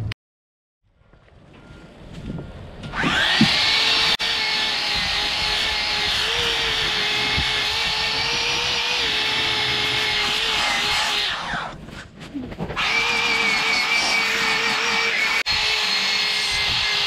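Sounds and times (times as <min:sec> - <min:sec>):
electric sander running: 0:03.0 - 0:11.4, 0:12.8 - 0:17.0.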